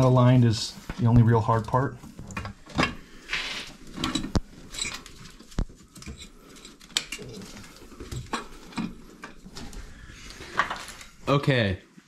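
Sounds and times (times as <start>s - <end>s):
short scrapes and rustles: 3.2s - 3.9s.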